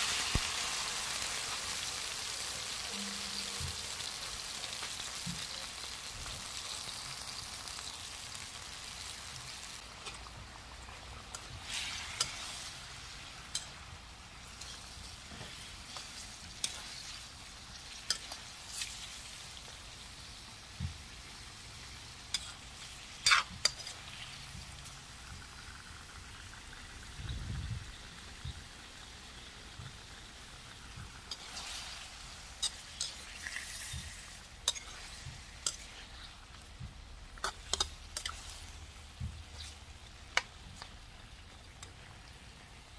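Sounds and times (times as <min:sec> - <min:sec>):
faint sizzle: 0:00.0 - 0:42.9
sauce hissing in a wok: 0:00.0 - 0:42.9
metal spatula scraping a wok: 0:11.2 - 0:13.8, 0:14.4 - 0:17.3, 0:22.3 - 0:24.4, 0:31.3 - 0:36.6.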